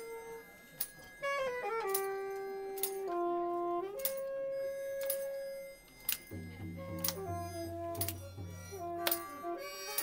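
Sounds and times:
sharp percussive hits: 0:06.0 - 0:10.0.

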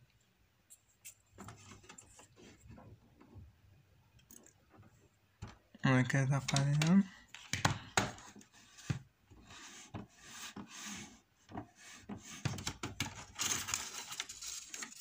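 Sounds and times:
paper rubbing and scraping: 0:11.8 - 0:15.0.

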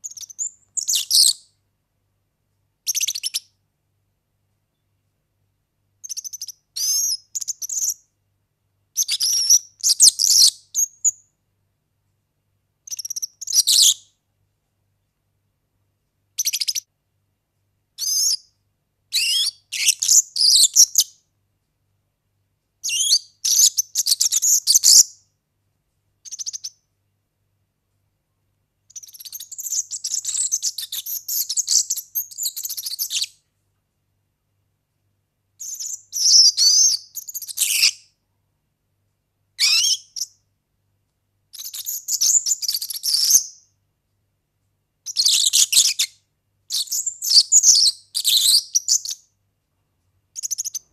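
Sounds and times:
bird singing jingling song: 0:00.0 - 0:01.5, 0:06.0 - 0:08.0, 0:22.9 - 0:25.2, 0:28.9 - 0:33.4, 0:35.6 - 0:38.0, 0:41.6 - 0:43.6, 0:46.7 - 0:49.2.

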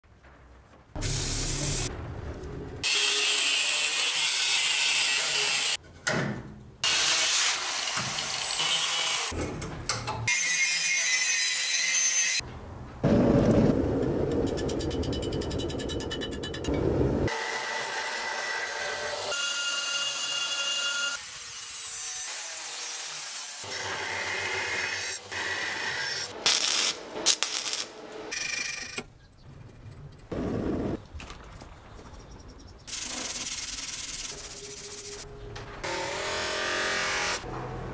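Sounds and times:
angle grinder on steel: 0:17.3 - 0:28.0
stick welding crackling: 0:26.3 - 0:28.4.

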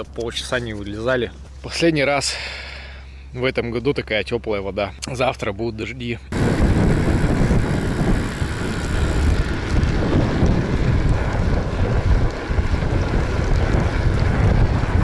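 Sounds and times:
wind buffeting microphone: 0:06.3 - 0:15.0.

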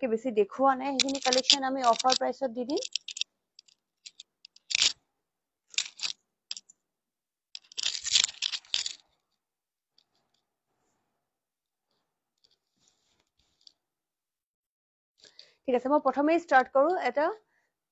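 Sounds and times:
rustling and clicking of handled objects: 0:00.9 - 0:05.0, 0:05.7 - 0:06.7, 0:07.6 - 0:09.4, 0:11.9 - 0:13.8.

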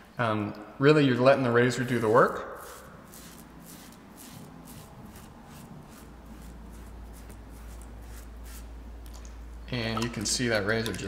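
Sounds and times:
razor scraping beard stubble: 0:02.6 - 0:08.6.

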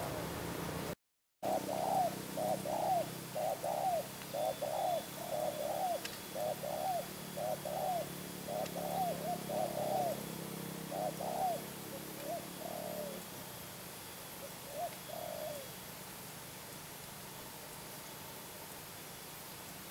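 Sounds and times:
doves cooing: 0:01.4 - 0:15.8.

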